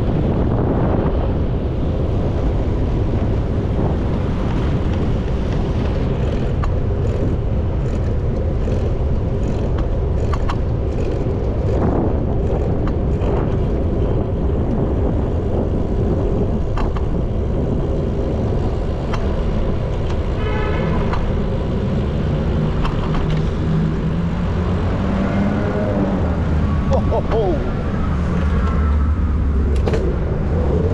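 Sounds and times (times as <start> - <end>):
wind and road noise: 0.0 - 30.9
bicycle clicks: 4.4 - 13.8, 18.3 - 20.4, 21.0 - 23.7
vehicle engine revving: 20.1 - 30.9.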